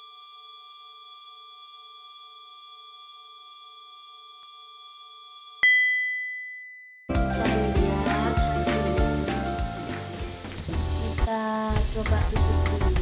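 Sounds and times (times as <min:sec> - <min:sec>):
bright completion ding: 0:05.6 - 0:07.1.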